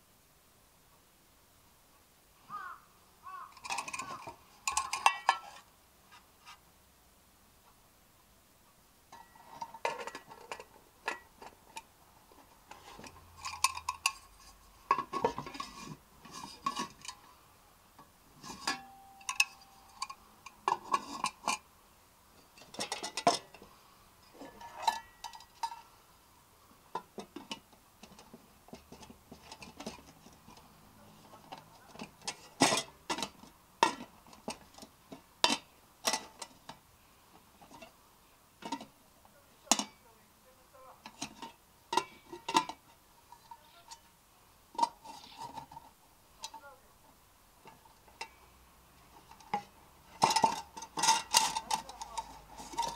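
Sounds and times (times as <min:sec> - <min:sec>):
metal mess tins clinking and scraping: 0:03.5 - 0:05.7, 0:09.1 - 0:17.4, 0:18.0 - 0:21.6, 0:22.4 - 0:26.0, 0:26.9 - 0:36.8, 0:38.6 - 0:39.0, 0:39.6 - 0:40.1, 0:41.0 - 0:44.1, 0:44.8 - 0:46.8, 0:47.6 - 0:52.9.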